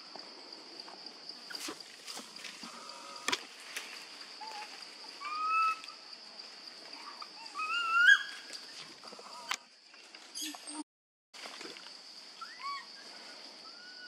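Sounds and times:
monkey whistle-like coo calls: 4.4s - 5.8s, 7.4s - 8.4s.

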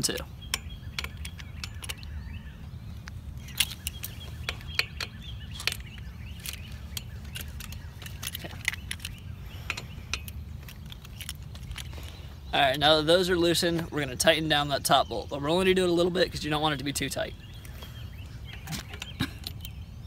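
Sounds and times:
allen key clicking on bolts: 0.0s - 2.2s, 3.5s - 11.9s.

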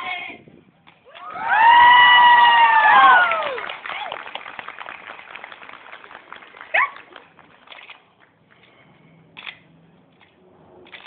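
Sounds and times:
audience applause: 1.3s - 7.6s.

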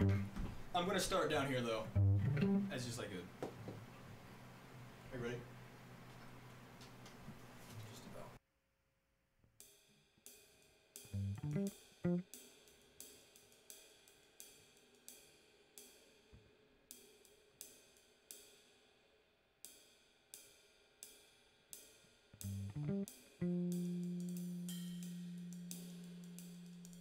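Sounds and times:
cymbal strikes: 23.5s - 27.0s
low ringing note: 24.0s - 27.0s.

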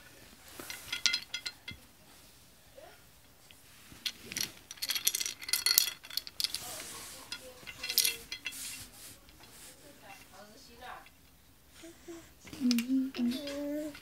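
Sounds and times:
wooden beads clacking on wire: 0.6s - 1.8s, 3.5s - 11.4s, 12.5s - 14.0s.

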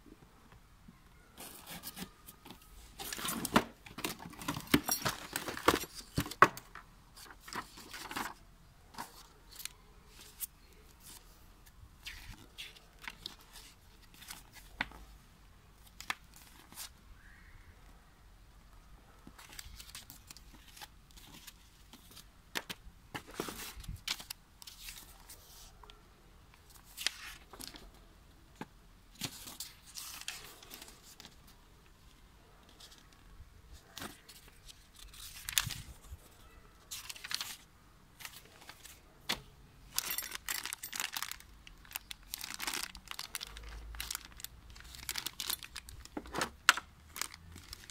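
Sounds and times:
paper pages rustling: 1.4s - 11.3s, 33.8s - 39.4s
plastic bag crinkling: 39.9s - 47.9s.

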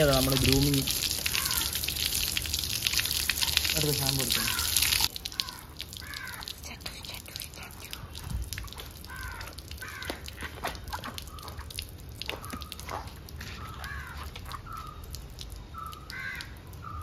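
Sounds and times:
crows cawing: 1.2s - 2.0s, 4.3s - 6.6s, 9.0s - 10.5s, 13.5s - 15.0s, 15.8s - 17.0s.

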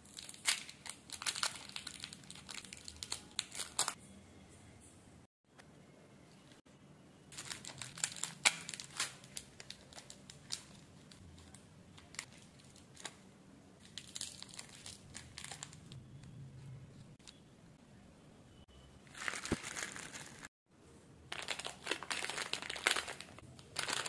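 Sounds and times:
candy wrappers crinkling: 0.0s - 4.0s, 7.3s - 13.2s, 13.8s - 16.0s, 19.1s - 20.5s, 21.3s - 24.0s
foil sachet tearing: 0.0s - 4.0s, 7.4s - 11.2s, 19.1s - 20.5s, 21.4s - 24.0s.

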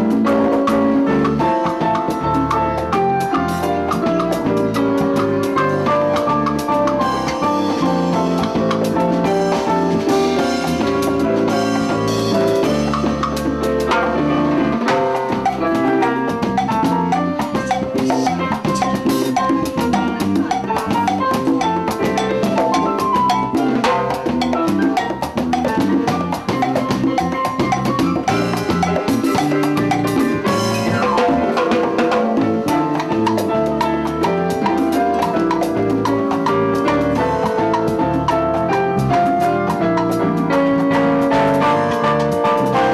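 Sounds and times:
drum kit with cymbals: 0.0s - 42.9s
electric bass: 0.0s - 42.9s
salsa band playing: 0.0s - 42.9s.

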